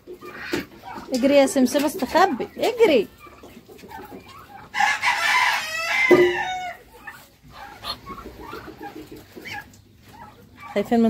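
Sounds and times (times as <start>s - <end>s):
rooster crowing: 4.7s - 6.8s.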